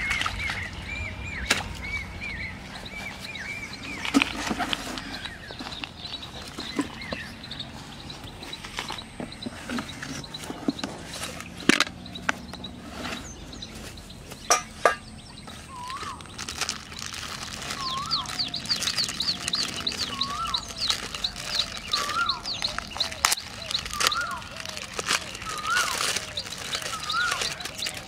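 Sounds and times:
fast high bird chirping: 0.0 - 28.0
packet clicks: 15.8 - 28.0
bird rising-and-falling call: 17.7 - 28.0.

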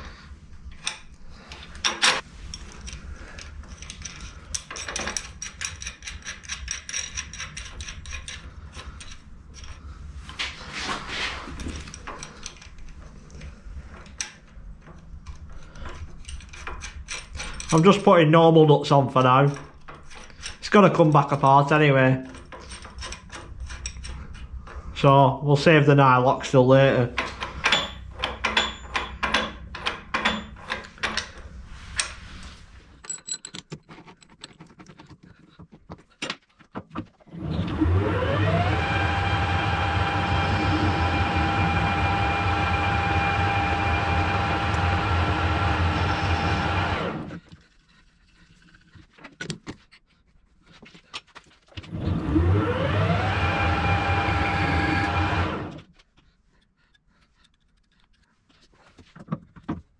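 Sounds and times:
metallic clicks and rattles of nuts: 0.7 - 9.9, 11.5 - 18.3, 19.1 - 24.9, 27.1 - 32.2, 33.0 - 37.1
metal lathe whining: 37.4 - 47.4, 51.9 - 55.8.

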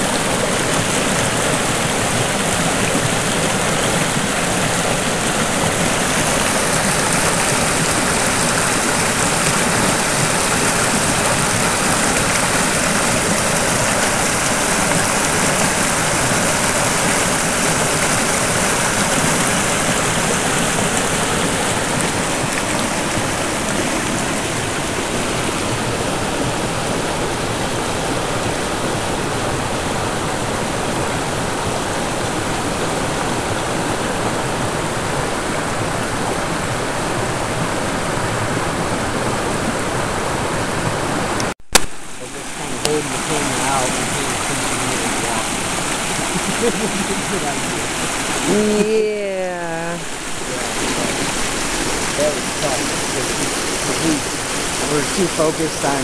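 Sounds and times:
creek rushing over rocks: 0.0 - 56.0.

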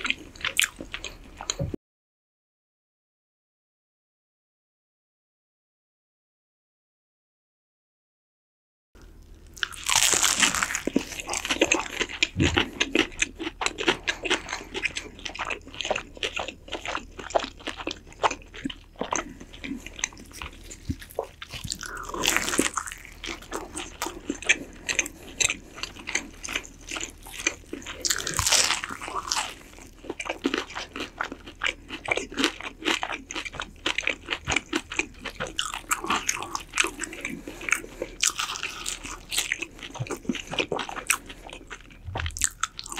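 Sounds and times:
wet chewing and biting: 9.4 - 42.9
crunching bites: 9.5 - 41.3.

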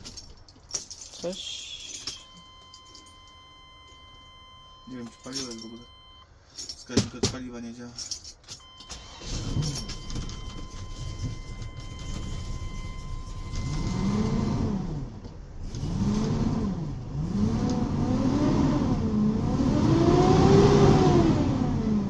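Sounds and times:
electronic warning tone: 2.0 - 6.2, 8.6 - 14.9
engine revving: 12.1 - 22.0.

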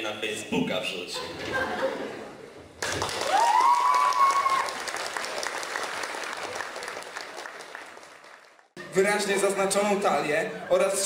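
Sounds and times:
audience applauding: 2.8 - 8.8
person whooping: 3.3 - 4.8.

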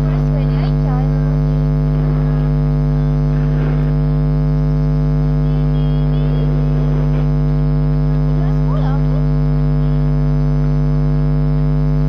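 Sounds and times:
loud electrical hum: 0.0 - 12.0
faint voice: 8.2 - 10.0.

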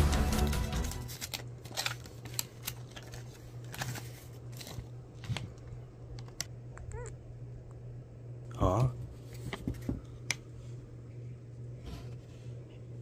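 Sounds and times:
background music: 0.0 - 1.2
low steady hum: 0.9 - 13.0.

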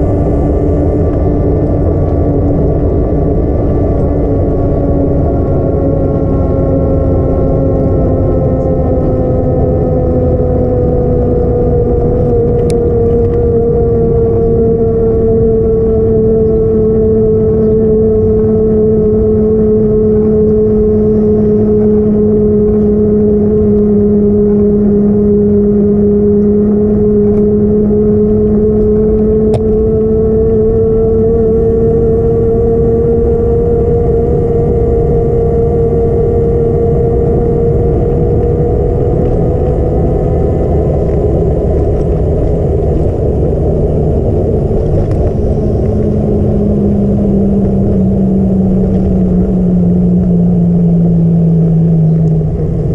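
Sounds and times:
road rumble: 0.0 - 52.9
truck engine drone: 0.0 - 52.9.

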